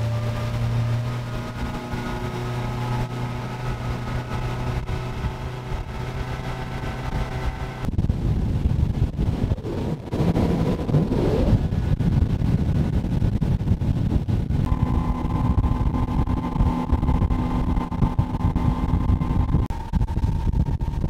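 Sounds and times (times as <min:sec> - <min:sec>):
outboard motor running: 0:00.0 - 0:21.0
water noise: 0:00.0 - 0:21.0
wind rush on microphone: 0:00.0 - 0:21.0
steady higher tone: 0:14.6 - 0:21.0.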